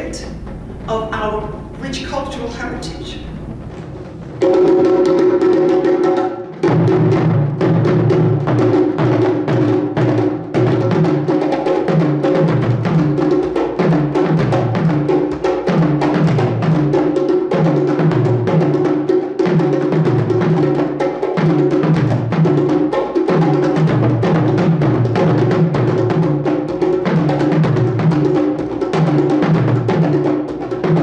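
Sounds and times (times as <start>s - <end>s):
hand drums playing: 0.0s - 31.0s.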